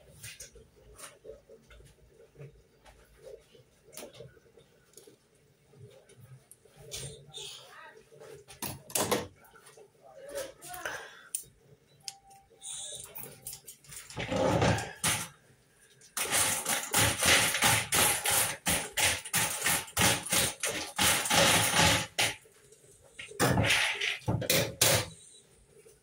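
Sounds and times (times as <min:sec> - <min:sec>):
utensil scraping plastic bowl: 0:16.2 - 0:22.4.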